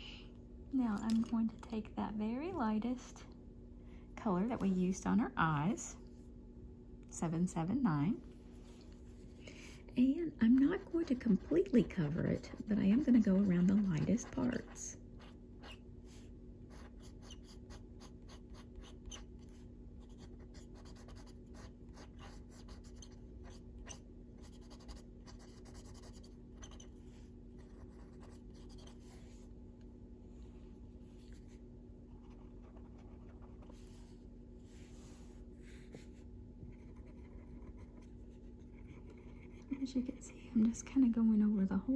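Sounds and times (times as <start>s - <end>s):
low steady hum: 0.0s - 41.9s
coloured pencil scratching on paper: 10.4s - 15.8s, 16.7s - 19.4s, 20.0s - 27.0s, 27.6s - 29.4s, 35.6s - 40.0s.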